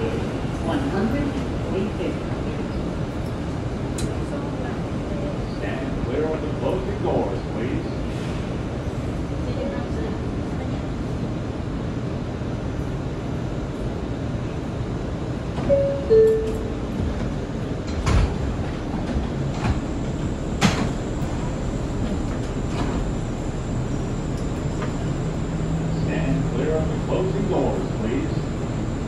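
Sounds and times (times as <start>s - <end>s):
low rumble of subway car: 0.0s - 29.0s
two-note door chime: 15.7s - 16.8s.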